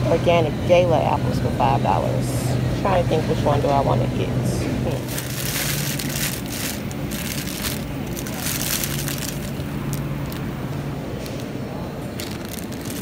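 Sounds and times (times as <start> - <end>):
plastic bags crinkling: 5.0 - 13.0.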